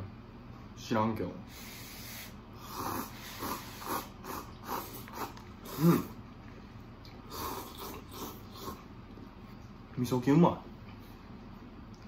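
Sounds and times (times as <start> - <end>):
voiced mm sound: 1.7 - 6.2
slurping and chewing noodles: 2.0 - 9.4.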